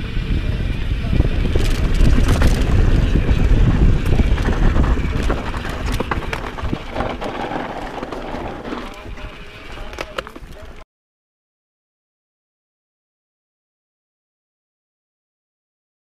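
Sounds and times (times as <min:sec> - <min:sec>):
bike tyre noise: 0:00.0 - 0:10.8
wind buffeting microphone: 0:00.0 - 0:10.8
bike clicking and rattling: 0:00.1 - 0:10.8.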